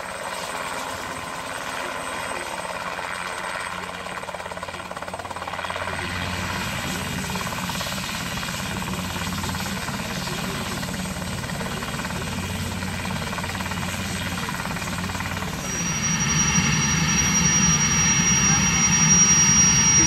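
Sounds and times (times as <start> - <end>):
helicopter rotor beating: 0.0 - 20.0
high turbine whine: 5.7 - 20.0.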